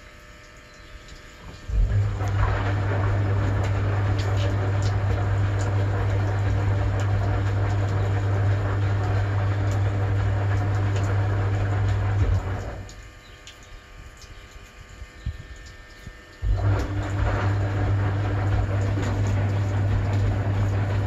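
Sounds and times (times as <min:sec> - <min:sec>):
washing machine motor hum: 0:00.0 - 0:21.0
water rushing in drum: 0:01.4 - 0:13.0, 0:16.4 - 0:21.0.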